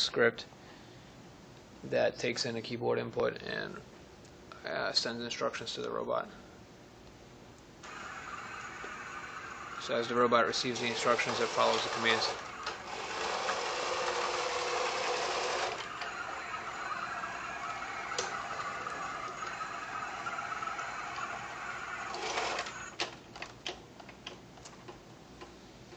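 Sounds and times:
robot drive motors whirring: 0:07.8 - 0:23.0.

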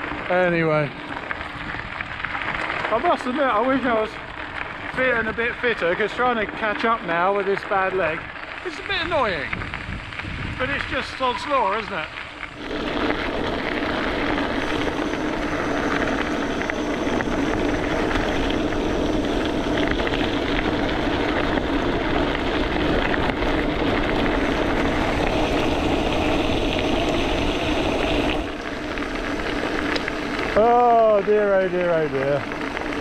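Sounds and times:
bike riding over gravel: 0:00.0 - 0:33.0
steady low hum: 0:12.4 - 0:33.0.

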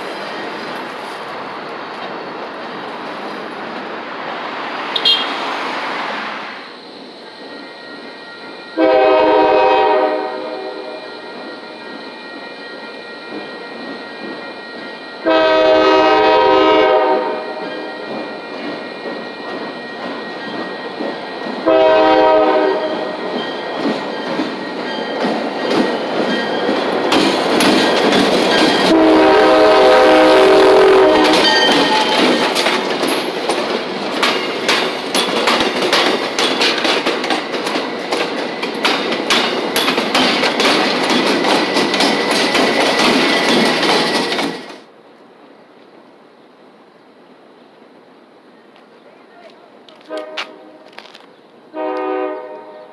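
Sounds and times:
locomotive horn: 0:04.9 - 0:05.5, 0:08.8 - 0:11.4, 0:15.2 - 0:17.9, 0:21.6 - 0:23.2, 0:28.8 - 0:32.3, 0:50.0 - 0:51.0, 0:51.7 - 0:52.9
train wheels clicking over rail joints: 0:11.2 - 0:17.0, 0:17.6 - 0:44.9, 0:48.8 - 0:52.0.

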